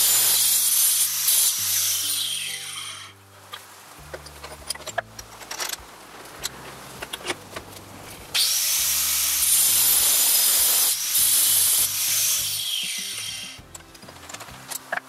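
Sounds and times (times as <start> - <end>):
angle grinder cutting steel bolt: 0.0 - 3.2, 8.3 - 15.0.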